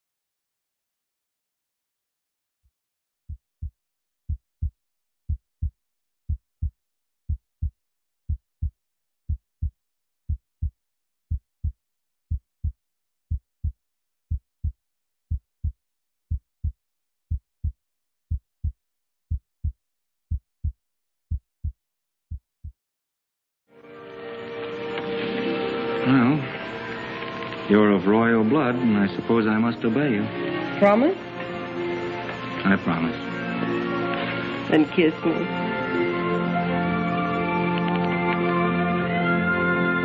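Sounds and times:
heartbeat thumps: 0:03.3 - 0:03.7, 0:04.3 - 0:04.7, 0:05.3 - 0:05.7, 0:06.3 - 0:06.7, 0:07.3 - 0:07.7, 0:08.3 - 0:08.7, 0:09.3 - 0:09.7, 0:10.3 - 0:10.7, 0:11.3 - 0:22.8.

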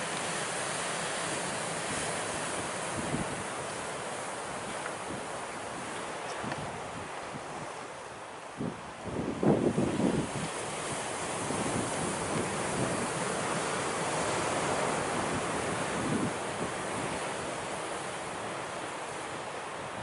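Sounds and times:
waves breaking on rocky shore: 0:00.0 - 0:20.0
wind buffeting microphone: 0:01.2 - 0:03.8, 0:04.5 - 0:07.8, 0:08.5 - 0:18.5.

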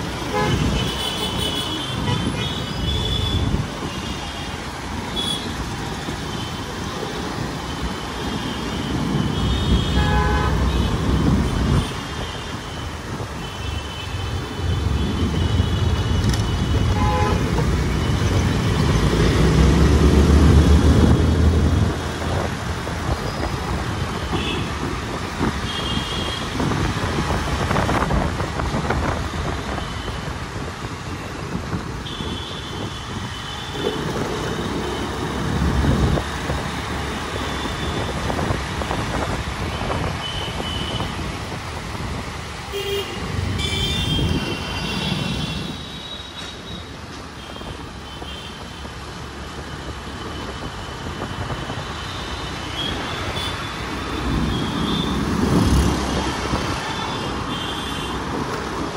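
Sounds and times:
road traffic: 0:00.0 - 0:58.9.

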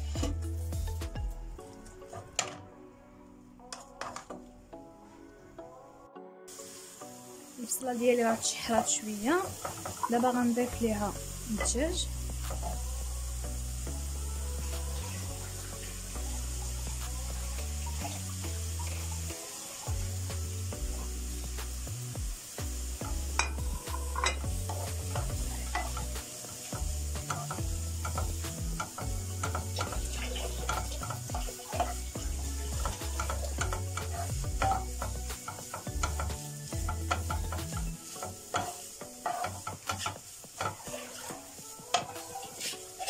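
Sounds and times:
light sizzle: 0:00.0 - 0:05.5, 0:06.5 - 0:43.0
wooden spatula scraping frying pan: 0:08.4 - 0:11.8, 0:23.0 - 0:43.0.

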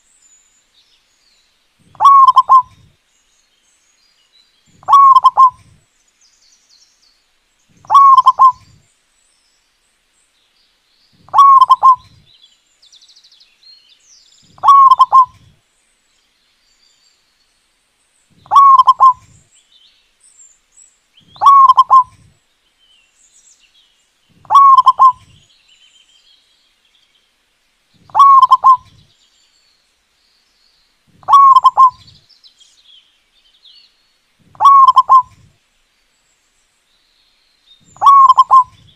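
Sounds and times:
dove cooing: 0:01.9 - 0:02.9, 0:04.8 - 0:05.8, 0:07.8 - 0:08.8, 0:11.3 - 0:12.2, 0:14.5 - 0:15.5, 0:18.4 - 0:19.4, 0:21.3 - 0:22.3, 0:24.4 - 0:25.4, 0:28.1 - 0:29.0, 0:31.1 - 0:32.1, 0:34.5 - 0:35.5, 0:38.0 - 0:38.9.

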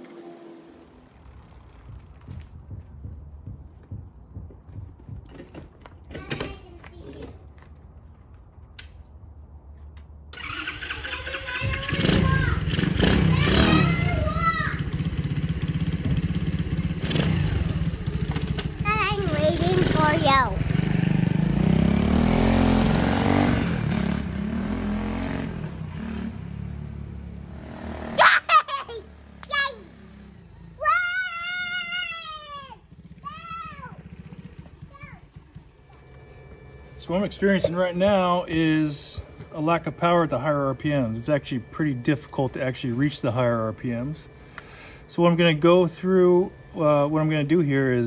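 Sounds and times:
minibike engine idling: 0:00.8 - 0:05.4, 0:10.4 - 0:22.0, 0:29.0 - 0:48.0
loud busy sound: 0:10.4 - 0:26.3, 0:27.2 - 0:48.0.

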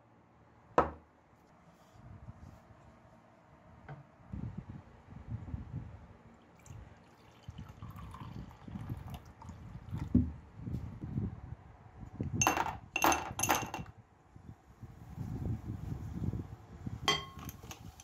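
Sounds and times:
liquid pouring into a glass: 0:06.5 - 0:10.2
metal fittings clinking in glass: 0:12.4 - 0:13.9, 0:17.1 - 0:17.9.

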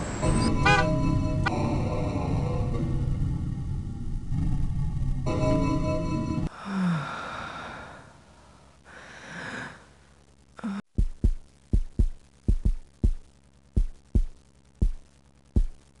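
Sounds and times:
breathy sighs: 0:06.5 - 0:10.0, 0:10.6 - 0:10.8
heartbeat thumps: 0:10.8 - 0:15.9.

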